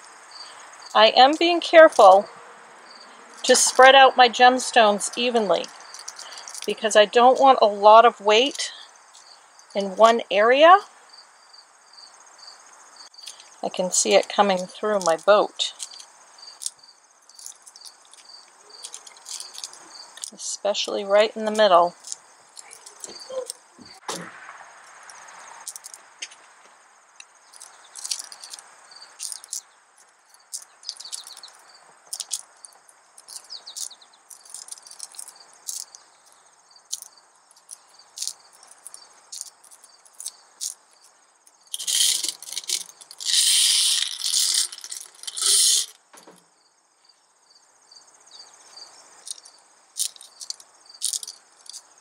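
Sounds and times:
insects chirring: 0.0 - 52.0
glass stones clicking together: 5.6 - 6.7, 14.9 - 20.4, 21.5 - 23.6, 25.6 - 26.0, 27.5 - 29.7, 30.4 - 36.0, 36.9 - 40.9, 41.7 - 46.0, 49.2 - 51.9.

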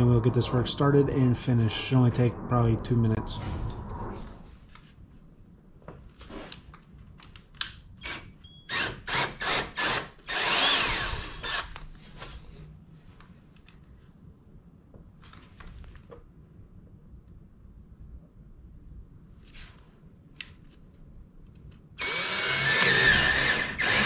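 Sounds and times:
cordless drill running: 8.0 - 11.8, 22.0 - 24.0.

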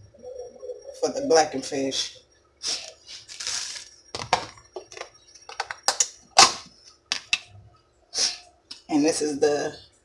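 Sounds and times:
containers and utensils clicking: 3.4 - 7.5.

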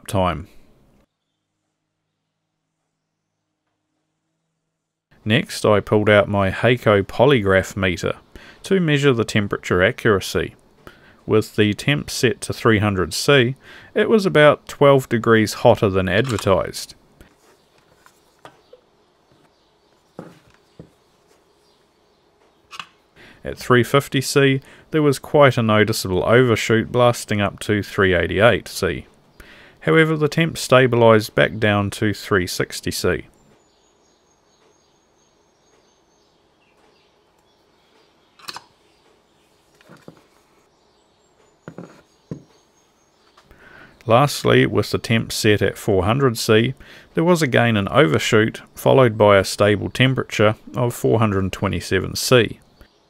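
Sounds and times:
soft knocks on desk: 41.7 - 42.5.

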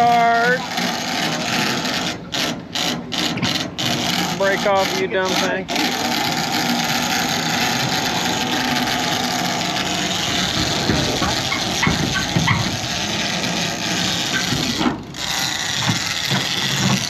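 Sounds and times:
boat engine running: 0.0 - 17.0
water: 0.0 - 17.0
wind: 0.0 - 17.0
short knocks: 9.7 - 15.0.

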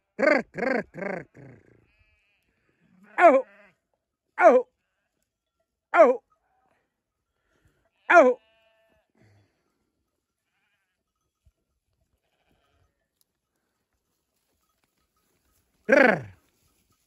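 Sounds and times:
sheep bleating: 0.0 - 3.8, 8.0 - 9.1, 10.4 - 11.0, 12.2 - 12.8, 15.9 - 16.4.

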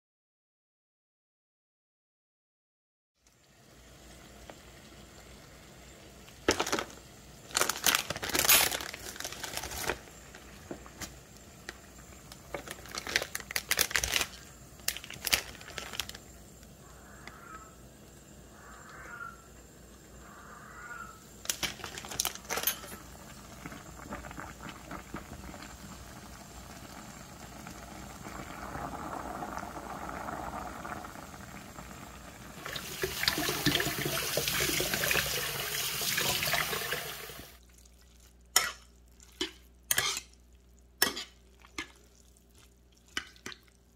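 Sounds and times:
plastic packet crinkling: 6.5 - 10.5, 12.3 - 16.3, 21.5 - 22.8
tap running water: 32.6 - 37.6.

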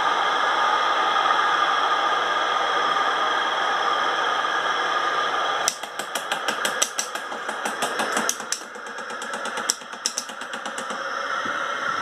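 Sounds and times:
plastic clicking and ticking: 5.7 - 11.0.

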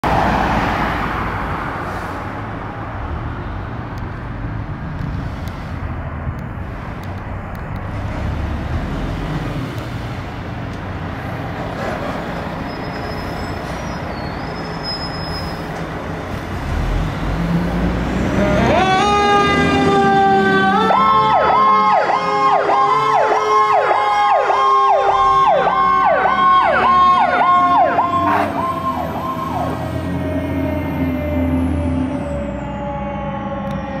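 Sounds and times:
diesel engine rumbling: 0.0 - 34.0
siren rising in pitch: 18.3 - 34.0.

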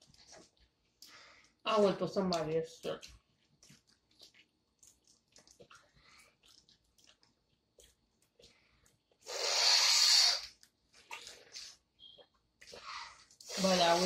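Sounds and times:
loud airy slurp: 9.3 - 10.5, 13.4 - 14.0.

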